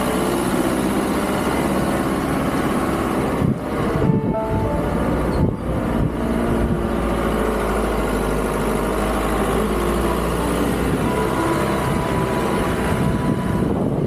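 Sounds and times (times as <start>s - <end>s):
car engine climbing hill: 0.0s - 14.0s
road and wind noise: 0.0s - 14.0s.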